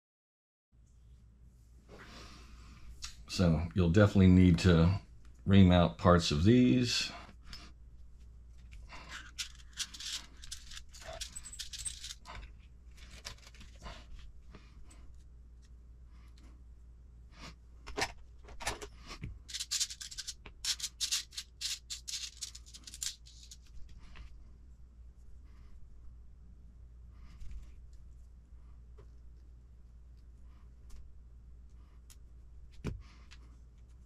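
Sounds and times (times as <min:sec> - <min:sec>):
small parts clicking and rattling: 0:08.6 - 0:13.8, 0:19.5 - 0:23.7.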